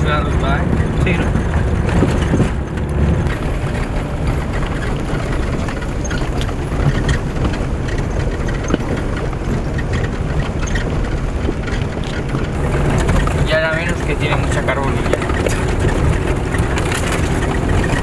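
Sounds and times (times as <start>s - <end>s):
car engine running: 0.0s - 18.0s.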